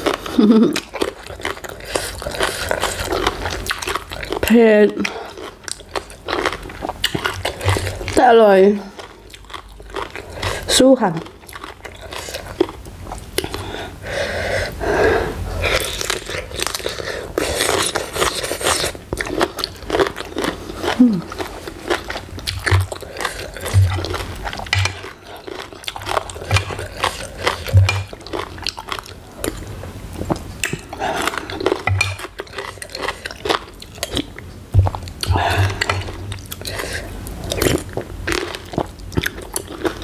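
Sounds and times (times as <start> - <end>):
chewing and crunching food: 0.0 - 13.9, 15.6 - 40.0
wet mouth sounds: 20.8 - 29.6, 30.2 - 40.0.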